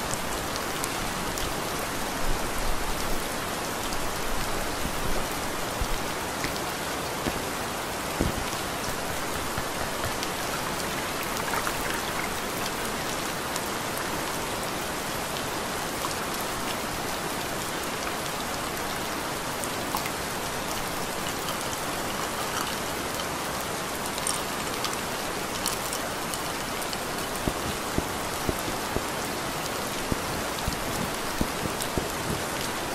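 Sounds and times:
steady rain hiss: 0.0s - 32.9s
raindrop ticks: 3.9s - 13.7s, 24.1s - 32.9s.

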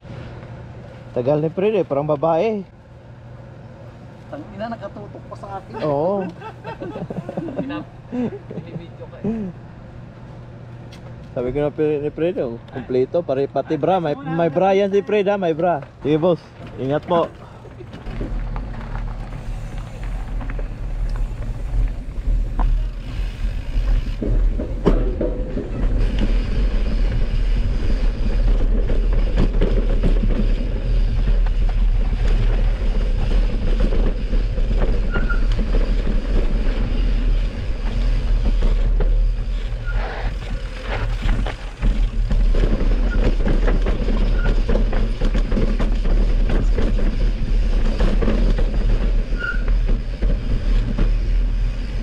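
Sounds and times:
bike rattling and knocking: 15.4s - 52.0s.

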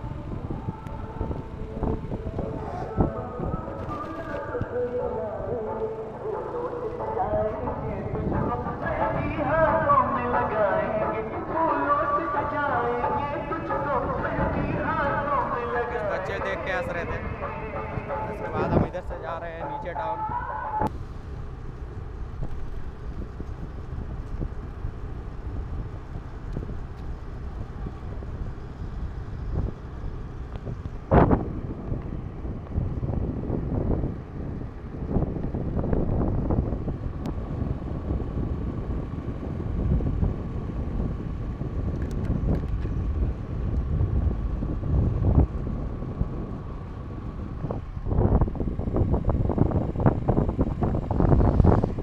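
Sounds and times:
scooter rumble: 0.0s - 18.9s, 19.5s - 52.0s
wind buffeting microphone: 0.0s - 21.0s, 21.6s - 52.0s.

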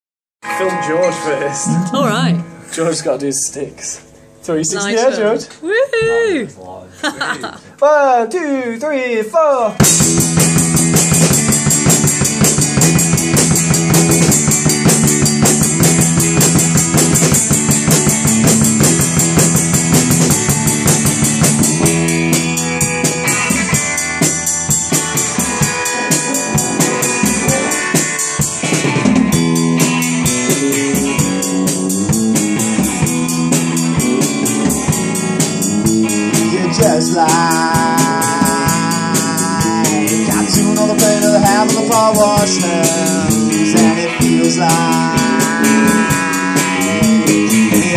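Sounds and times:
drum kit with cymbals: 0.4s - 3.1s, 9.8s - 47.9s
electric guitar: 0.4s - 6.4s, 9.8s - 47.9s
man singing: 36.3s - 47.9s.

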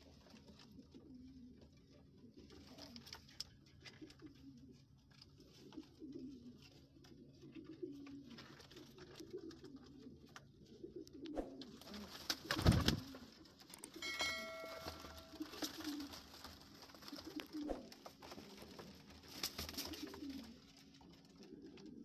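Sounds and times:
pigeons cooing: 0.0s - 22.0s
flurry of wingbeats: 11.3s - 13.4s, 14.2s - 22.0s
brief ringing tone: 14.0s - 15.6s.

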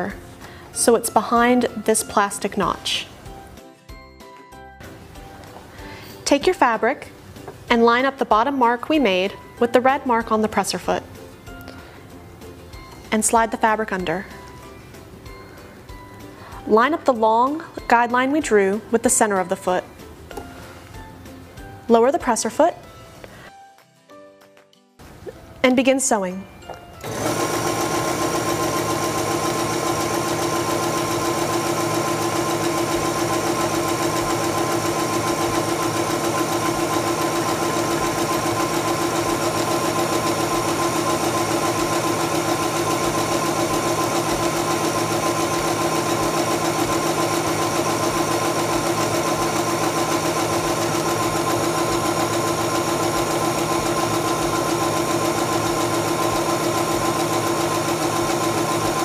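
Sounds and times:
sewing machine stitching: 27.0s - 59.0s.

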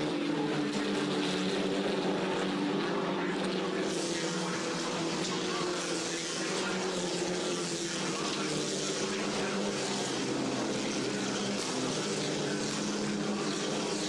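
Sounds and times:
racing car engines at high revs: 0.0s - 14.0s.

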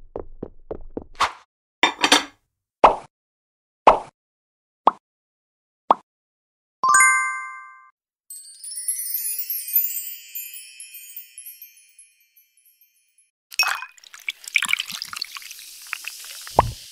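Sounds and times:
bright bell ding: 6.8s - 13.1s
high twinkling chimes: 8.3s - 13.8s
short plop: 16.5s - 16.8s.

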